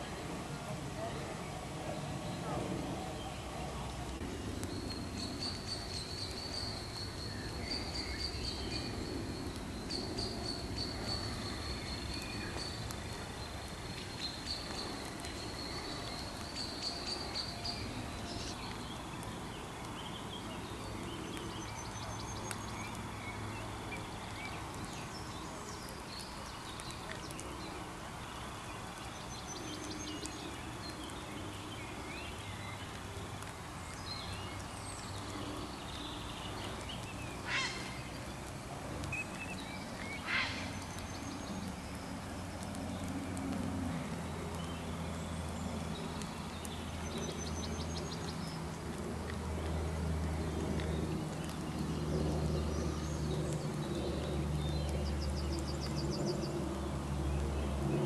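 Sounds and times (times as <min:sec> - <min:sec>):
bird chirps and calls: 0:35.8 - 0:38.3, 0:39.1 - 0:41.6.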